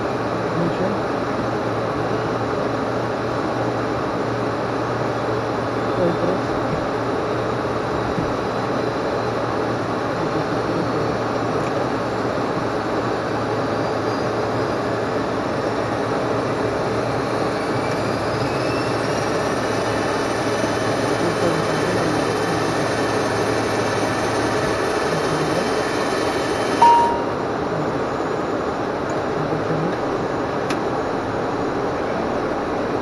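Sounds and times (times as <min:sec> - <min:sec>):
turboprop cockpit engine noise: 0:00.0 - 0:33.0
short beep: 0:26.8 - 0:27.4.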